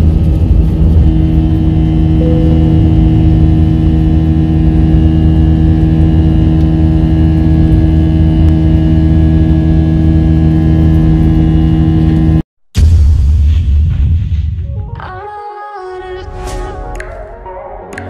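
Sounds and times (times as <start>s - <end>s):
jet engine cabin drone: 0.0s - 12.4s.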